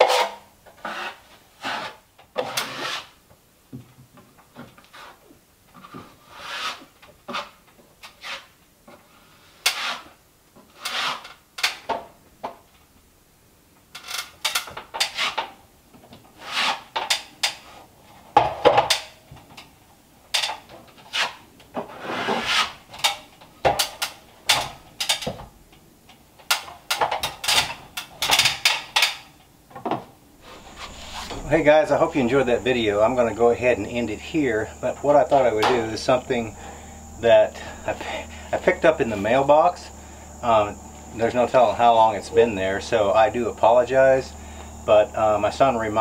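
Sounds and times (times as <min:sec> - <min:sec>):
taping knife scraping compound: 0:00.0 - 0:03.2, 0:06.2 - 0:08.6, 0:09.3 - 0:11.3, 0:16.4 - 0:17.0, 0:21.0 - 0:22.8.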